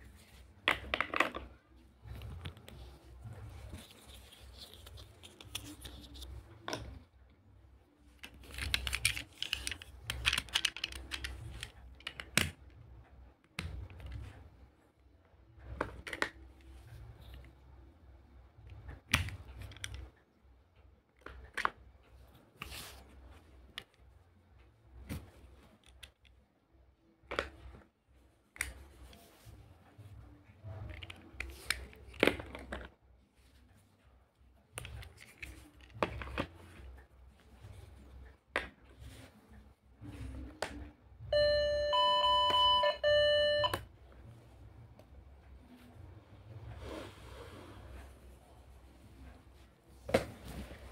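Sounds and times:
plastic toy pieces clicking: 0:08.4 - 0:12.6.

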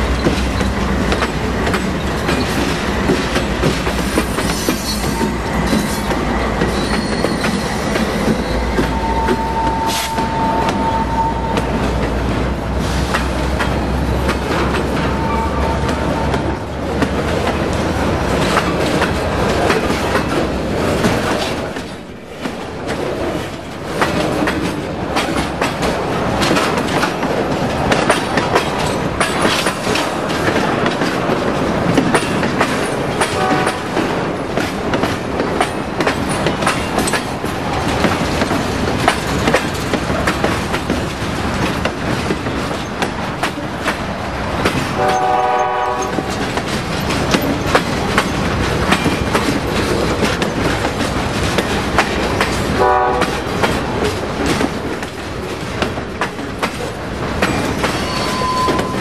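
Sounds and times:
freight train wheels on rails: 0:00.0 - 0:59.0
wheels clicking over rail joints: 0:00.0 - 0:59.0
train horn blast: 0:08.8 - 0:11.8, 0:15.0 - 0:16.6, 0:33.3 - 0:34.0, 0:45.0 - 0:46.4, 0:52.8 - 0:53.4.

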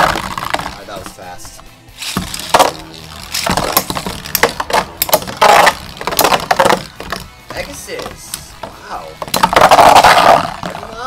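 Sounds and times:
spinning tops clashing metal clacks: 0:02.0 - 0:08.2.

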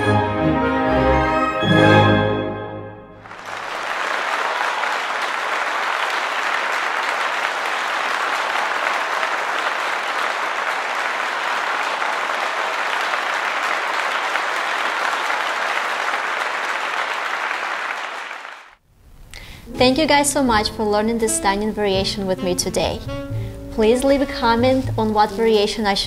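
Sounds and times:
audience applause: 0:03.2 - 0:18.8.

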